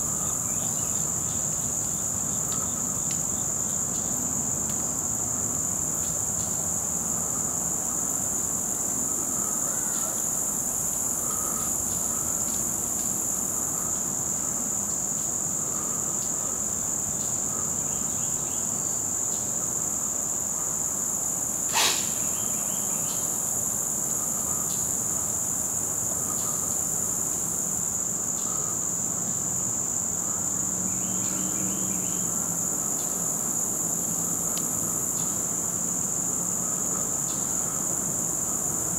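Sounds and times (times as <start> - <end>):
insect chorus drone: 0.0 - 38.9
sharp click: 21.7 - 22.3.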